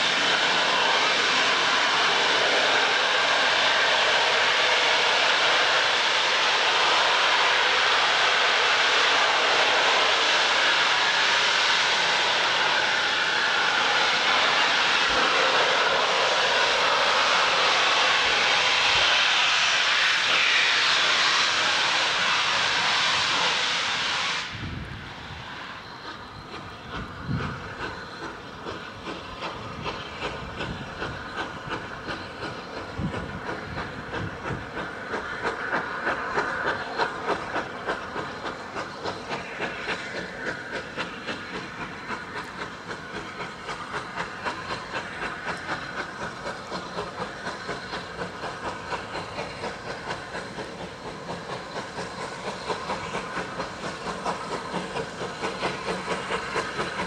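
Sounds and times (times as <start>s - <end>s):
steam hissing: 0.0s - 57.0s
steam locomotive exhaust beats: 0.0s - 57.0s.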